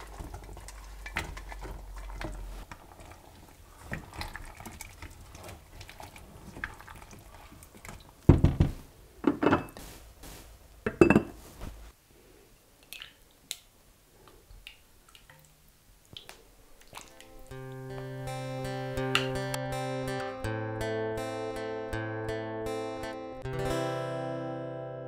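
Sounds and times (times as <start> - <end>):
spatula stirring in a metal pot: 0.0 - 7.8.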